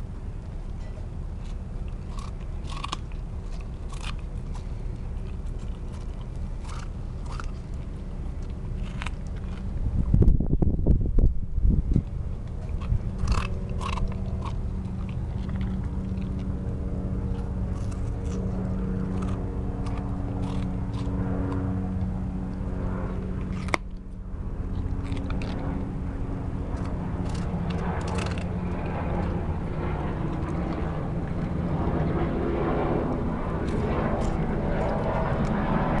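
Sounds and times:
low mechanical hum: 0.0s - 36.0s
puppy chewing and crunching: 0.0s - 36.0s.

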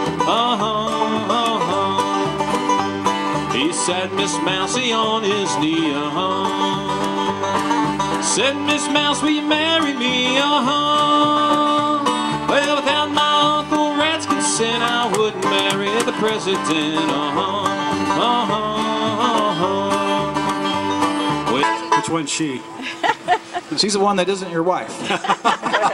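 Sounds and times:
acoustic guitar: 0.0s - 25.9s
banjo: 0.0s - 25.9s
upright bass: 0.0s - 25.9s.

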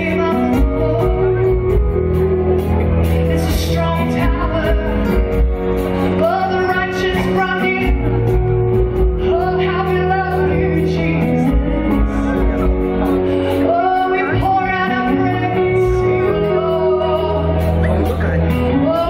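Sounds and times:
woman singing: 0.0s - 19.0s
worship band playing slow song: 0.0s - 19.0s.

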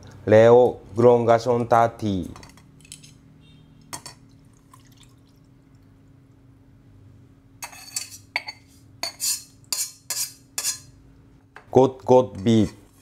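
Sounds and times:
liquid trickling through a strainer: 4.2s - 6.0s
chopsticks scraping a saucepan: 7.6s - 10.9s, 12.4s - 13.0s.

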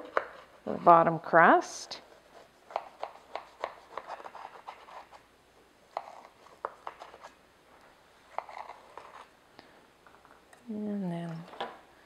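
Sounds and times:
knife cutting crisp pastry: 2.3s - 5.2s.

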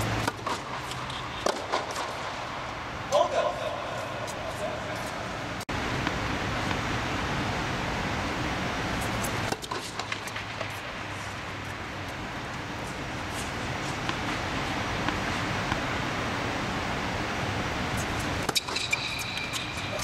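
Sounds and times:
tennis ball struck by racket: 0.0s - 2.4s.

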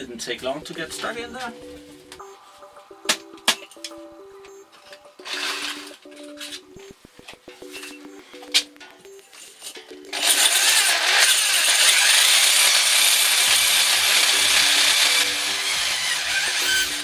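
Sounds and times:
electric drill grinding whir: 10.1s - 17.0s.

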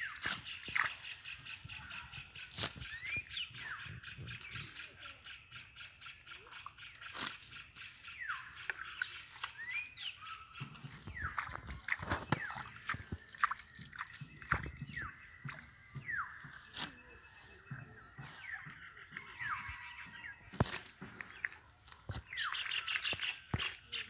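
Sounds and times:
hands splashing in mud: 11.1s - 14.8s.

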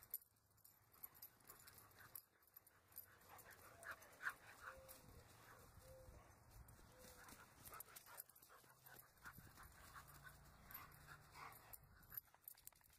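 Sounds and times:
dog panting: 7.0s - 12.3s.

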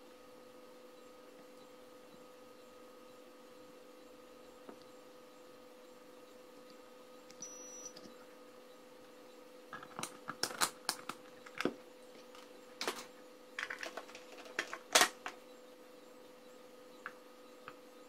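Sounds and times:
faint steady hum: 0.0s - 18.0s.

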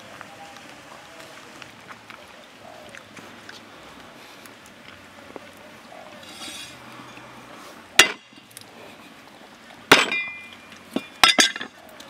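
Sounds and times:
cleaver striking wooden block: 8.0s - 8.3s.

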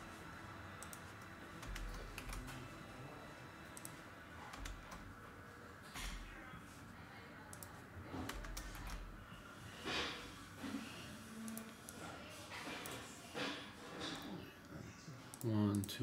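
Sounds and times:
computer keyboard key presses: 1.6s - 2.6s, 3.8s - 5.1s, 7.5s - 9.0s.

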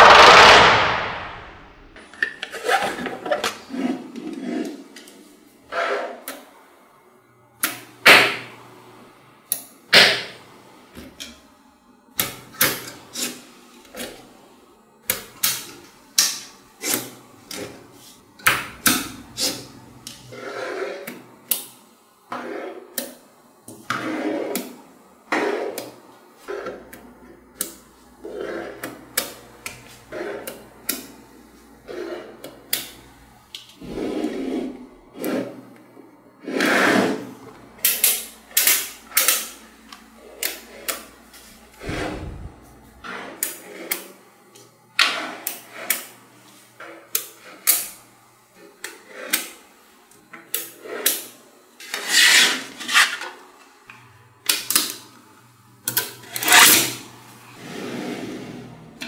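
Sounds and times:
blocks scraping against each other: 2.5s - 4.9s, 20.3s - 21.1s, 31.9s - 32.4s, 36.4s - 37.3s, 41.8s - 43.9s, 51.9s - 53.3s.

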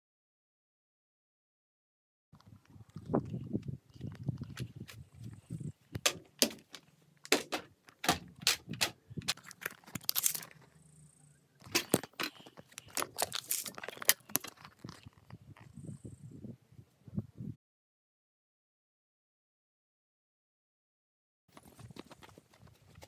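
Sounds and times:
sharp clicks and knocks: 6.0s - 10.6s, 11.6s - 15.0s.

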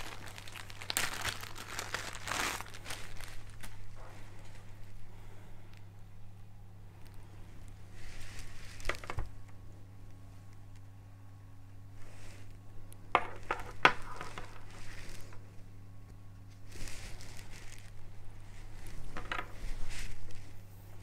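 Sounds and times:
cable rustling: 0.0s - 5.0s, 7.0s - 9.6s, 12.2s - 15.5s, 16.1s - 21.0s.

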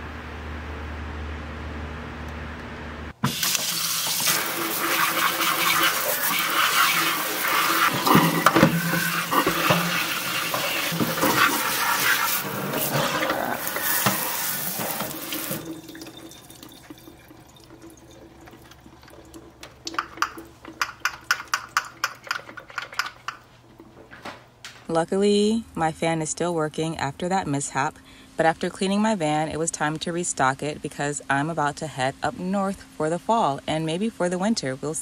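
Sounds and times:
tap water splashing in a sink: 3.2s - 23.9s.

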